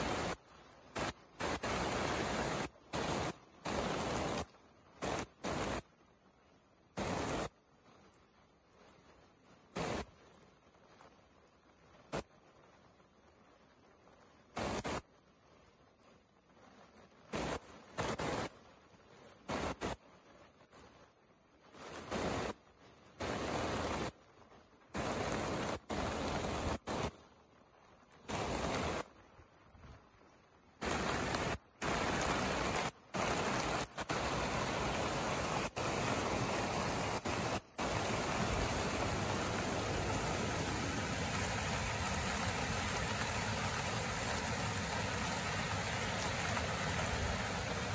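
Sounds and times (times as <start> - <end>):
river water rushing: 0.0 - 5.8, 7.0 - 7.5, 21.8 - 24.2, 24.9 - 27.2, 28.2 - 47.9.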